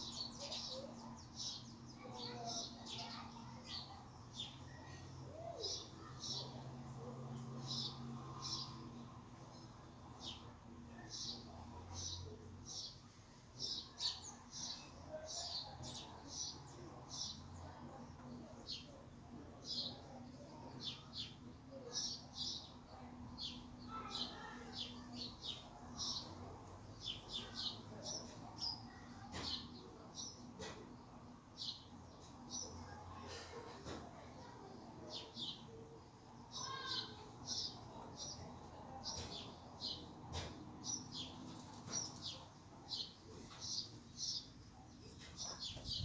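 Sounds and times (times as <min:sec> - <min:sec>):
songbird chirping: 0:00.0 - 0:46.0
sparrow chirping: 0:40.8 - 0:46.0.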